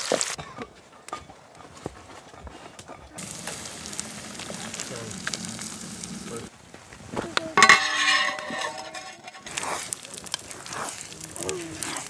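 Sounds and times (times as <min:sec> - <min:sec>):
eggs and bacon sizzling: 0:00.0 - 0:00.4, 0:03.2 - 0:12.0
metal lid clattering onto pan: 0:07.6 - 0:09.6.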